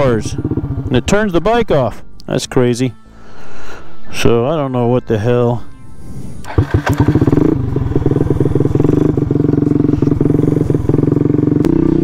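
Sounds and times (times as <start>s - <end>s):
scooter engine starting and running: 0.0s - 1.2s, 6.4s - 12.0s.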